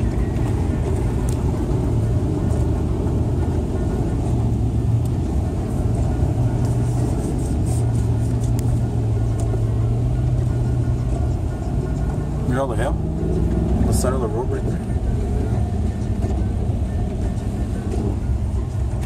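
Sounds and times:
water spraying from wheels: 0.0 - 14.2
car engine and road rumble: 0.0 - 19.0.

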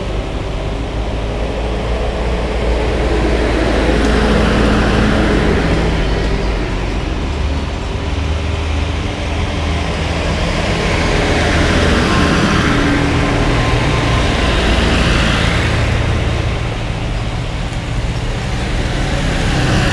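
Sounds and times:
tractor engines rumbling: 0.0 - 19.9.

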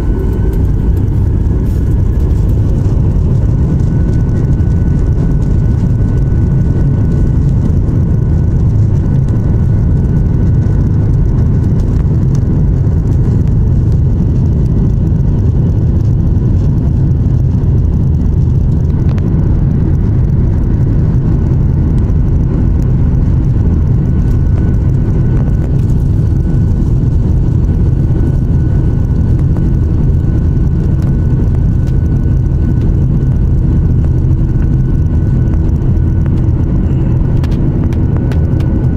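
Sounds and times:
faint steady whine: 0.0 - 38.9
jet engine low rumble: 0.0 - 38.9.

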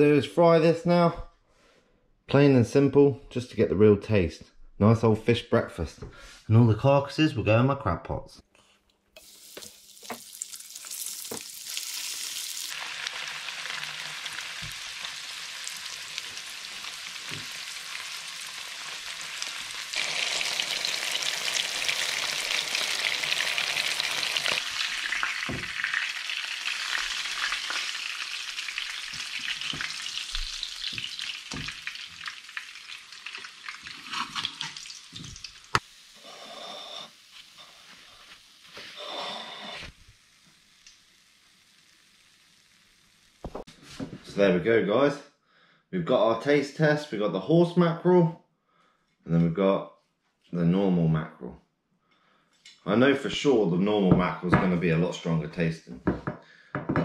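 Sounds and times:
oil sizzling in a frying pan: 9.2 - 43.7.

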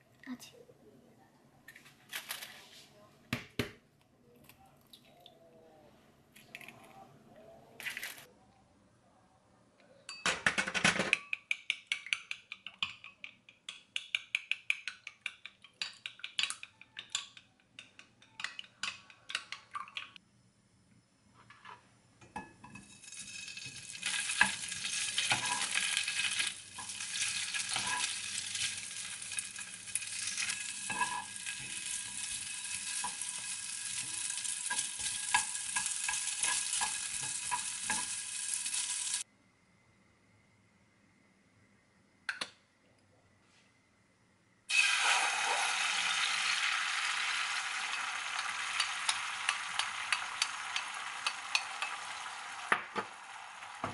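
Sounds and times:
utensil clicking against glass bowl: 11.1 - 20.2
food sizzling in frying pan: 22.7 - 39.3, 44.7 - 53.9.

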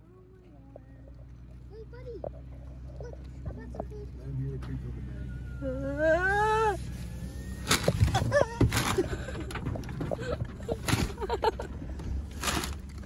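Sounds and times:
paper bag crackling: 7.5 - 9.1, 12.3 - 13.0.

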